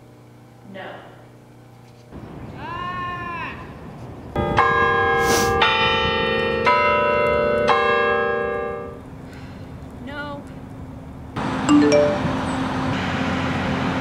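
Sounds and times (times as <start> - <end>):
tower bells chiming: 4.4 - 9.0, 11.7 - 12.6.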